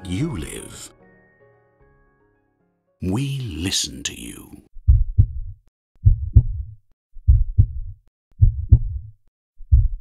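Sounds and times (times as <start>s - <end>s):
heartbeat thumps: 4.8s - 10.0s.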